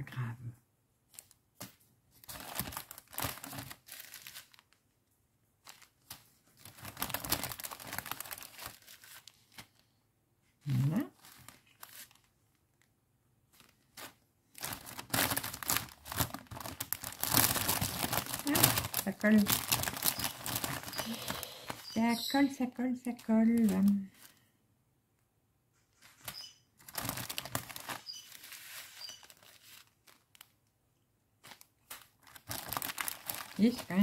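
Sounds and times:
plastic bags crinkling: 2.2 - 4.8, 5.6 - 9.8, 11.2 - 12.3, 13.6 - 22.1, 26.2 - 30.6, 31.4 - 34.0.

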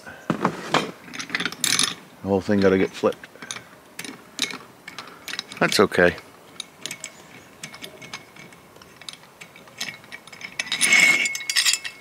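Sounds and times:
metallic clicks and ticks: 2.5 - 12.0.

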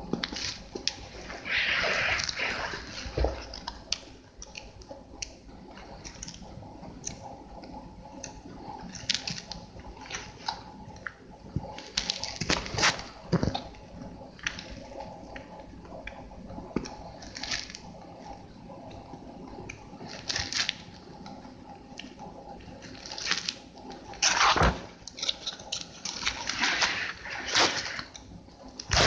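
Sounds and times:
pages turning and rustling: 24.2 - 28.1.

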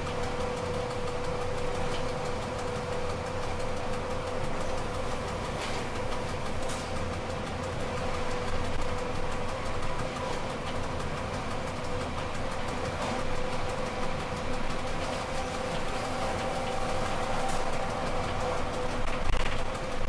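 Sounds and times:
train hum: 0.0 - 20.0
wheels rumbling on rails: 0.0 - 20.0
whining drive tones: 0.0 - 20.0.

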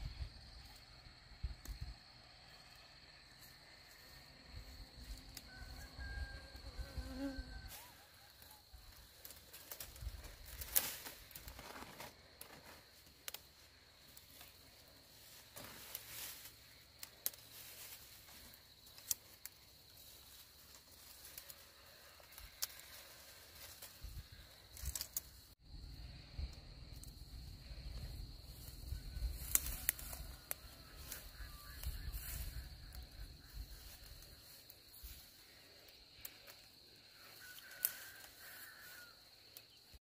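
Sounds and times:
high insect drone: 0.0 - 40.0
leaves rustling: 7.7 - 25.6, 27.0 - 39.9
stems snapping: 9.1 - 14.6, 16.9 - 18.0, 18.8 - 19.7, 20.7 - 21.6, 22.3 - 24.0, 24.7 - 25.4, 29.3 - 32.4, 37.5 - 38.3.

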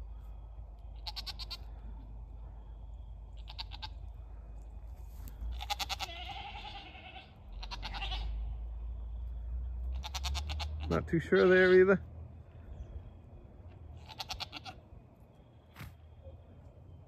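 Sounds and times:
goats bleating: 1.0 - 1.7, 3.4 - 4.1, 5.5 - 8.5, 9.9 - 11.8, 14.0 - 14.8.

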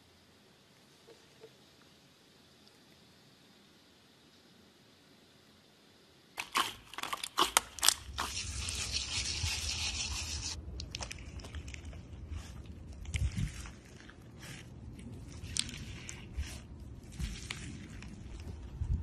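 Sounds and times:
foam bead slime crunching: 6.4 - 18.8
sprinkles pouring hiss: 8.2 - 11.9.

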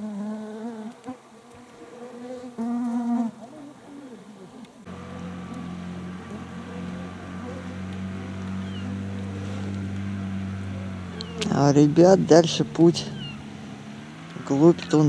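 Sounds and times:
insects buzzing: 0.0 - 15.0
outboard motor running: 4.8 - 15.0.

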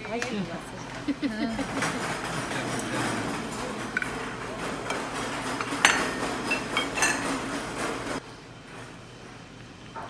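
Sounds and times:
restaurant background din: 0.0 - 8.2
dishes and tableware clinking: 1.6 - 8.2.

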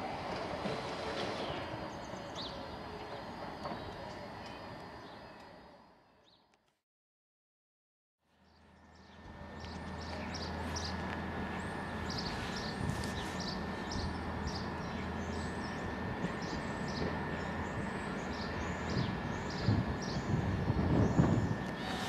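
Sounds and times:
small birds chirping: 8.4 - 11.0, 11.6 - 20.4
diesel rail vehicle rumble: 8.6 - 22.0.

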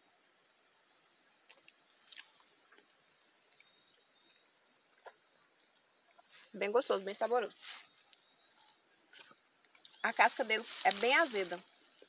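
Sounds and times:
mouth clicks and smacks chewing: 1.5 - 5.8.

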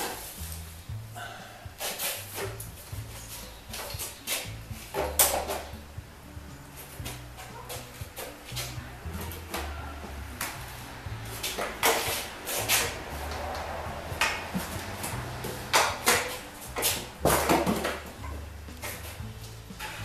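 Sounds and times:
tools and equipment clattering: 1.8 - 5.8, 11.2 - 20.0.

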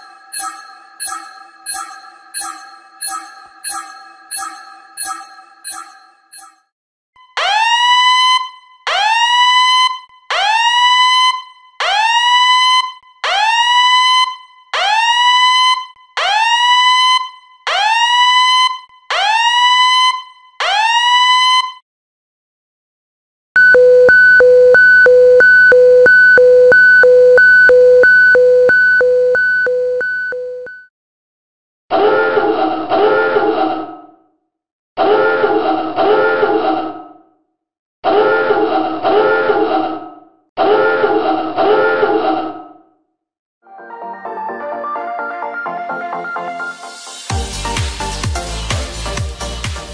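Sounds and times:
alternating low and high alarm beeps: 0.3 - 6.6, 23.6 - 30.9.

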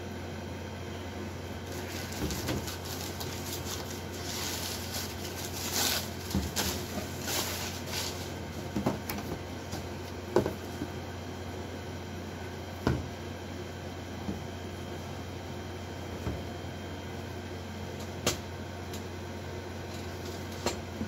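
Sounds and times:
tissue paper rustling: 1.6 - 8.5.

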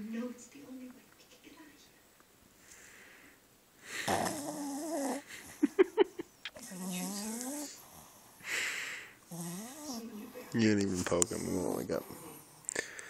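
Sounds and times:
dog snoring: 3.9 - 5.3, 6.6 - 8.4, 9.3 - 10.6, 11.2 - 12.7.

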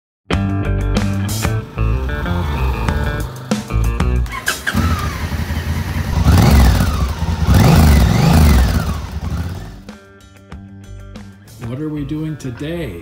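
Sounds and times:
motorcycle engine accelerating: 1.0 - 9.9.

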